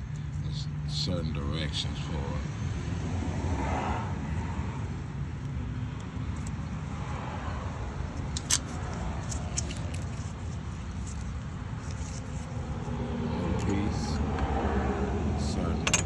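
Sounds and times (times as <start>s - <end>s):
engine parts clicking: 8.2s - 12.4s.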